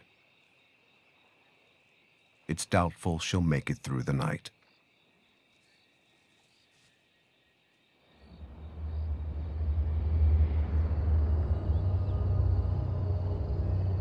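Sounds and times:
dark low rumbling soundtrack drone: 8.2 - 14.0.

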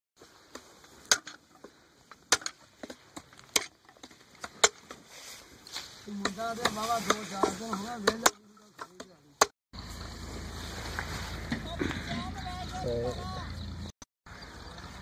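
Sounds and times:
blade chopping sugarcane on wood: 2.2 - 5.0, 6.1 - 9.5
person talking: 6.0 - 9.4, 11.6 - 13.6.

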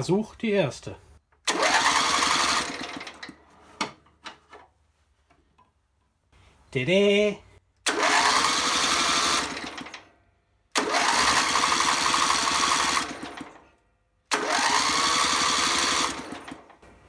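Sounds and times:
electric starter motor whine: 1.4 - 3.4, 7.8 - 10.1, 10.7 - 13.6, 14.3 - 16.8.

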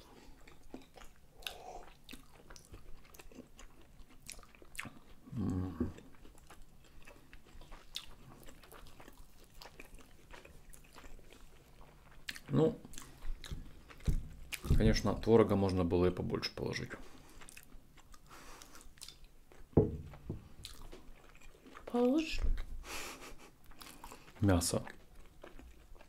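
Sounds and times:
chewing and biting food: 0.0 - 15.1, 16.7 - 22.8, 23.4 - 26.0
person humming low: 5.3 - 6.0
wet mouth clicks and smacks: 17.5 - 19.3.

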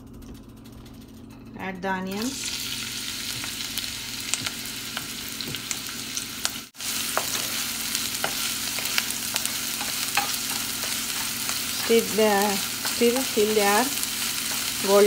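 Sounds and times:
onion sizzling in hot oil: 2.2 - 15.0
wooden spatula stirring in pan: 6.5 - 15.0.

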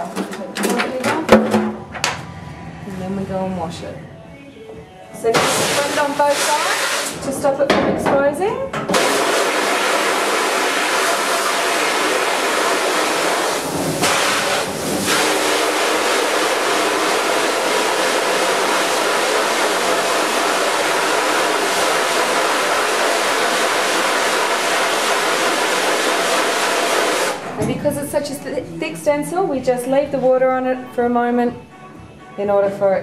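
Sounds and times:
hose nozzle spraying water: 5.4 - 7.2, 8.9 - 27.4.

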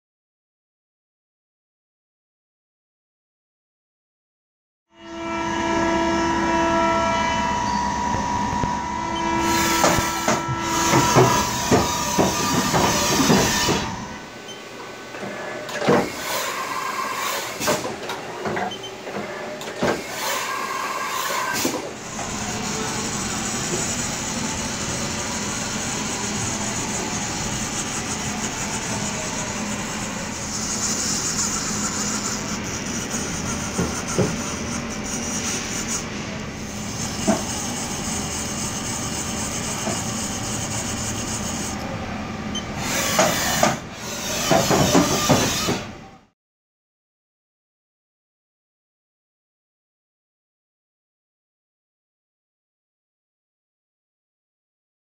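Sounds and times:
milling machine whine: 5.0 - 46.0.

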